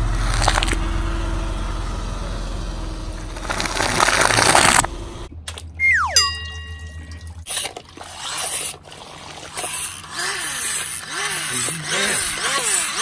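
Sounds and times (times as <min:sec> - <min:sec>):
water splashing and sloshing: 0:03.5 - 0:11.1.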